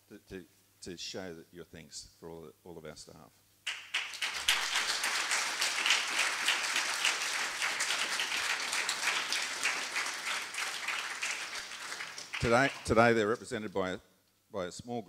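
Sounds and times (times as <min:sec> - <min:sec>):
audience applauding: 0:03.7 - 0:13.1.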